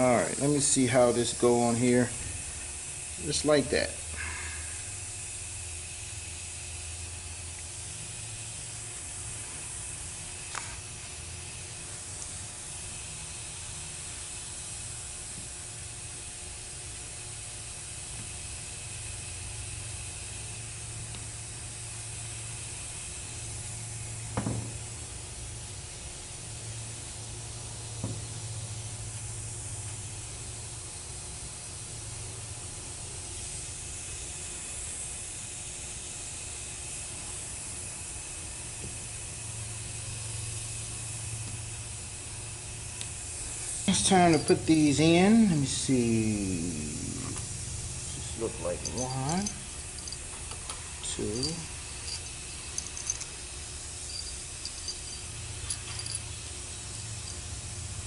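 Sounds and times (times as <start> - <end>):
background hiss: 0.0 - 5.4, 33.2 - 58.0.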